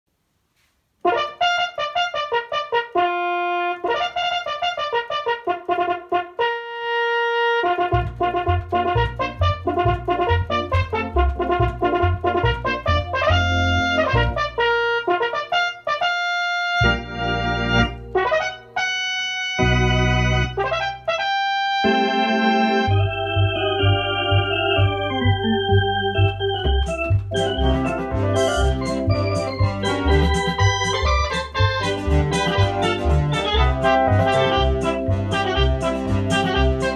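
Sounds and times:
electronic organ playing lively tune: 0:01.1 - 0:36.9
pulsing bass line: 0:07.9 - 0:14.5, 0:22.9 - 0:36.9.

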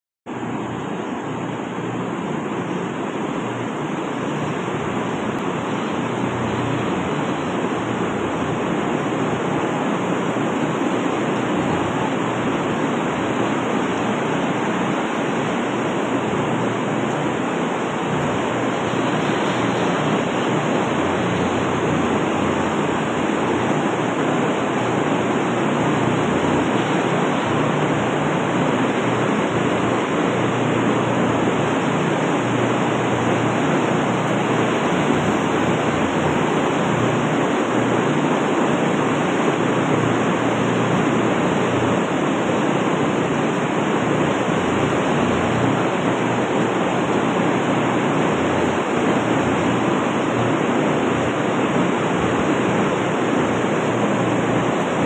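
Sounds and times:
ventilation fans rushing: 0:00.3 - 0:55.0.

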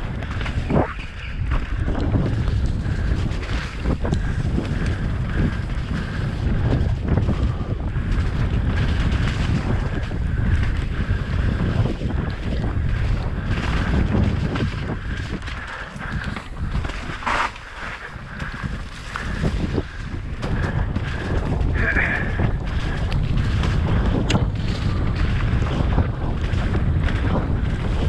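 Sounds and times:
bike knocks and rattles: 0:00.0 - 0:28.0
bike tyres rumbling on dirt: 0:00.0 - 0:28.0
wind buffeting microphone: 0:00.0 - 0:28.0.

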